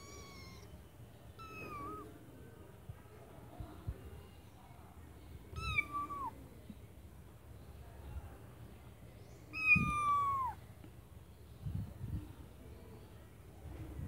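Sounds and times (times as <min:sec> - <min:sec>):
kittens mewing: 0:00.0 - 0:00.7, 0:01.4 - 0:02.1, 0:09.6 - 0:10.6.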